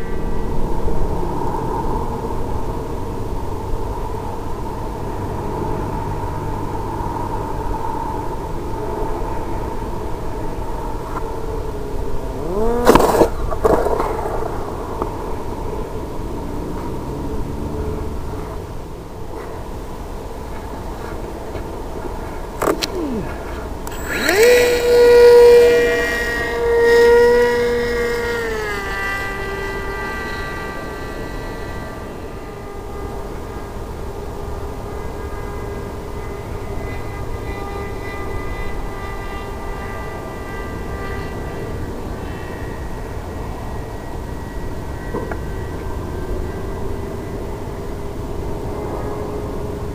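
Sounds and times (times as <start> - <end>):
low rushing noise: 0.0 - 38.9
electric motor whining: 5.2 - 19.3, 20.2 - 49.9.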